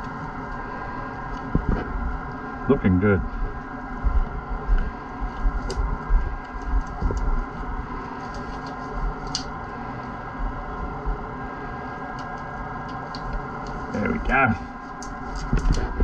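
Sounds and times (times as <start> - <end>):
steady mechanical hum: 0.0 - 16.0
low handling thumps: 1.5 - 2.1, 3.2 - 7.5
latex glove snapping and rustling: 8.2 - 9.5, 14.9 - 16.0.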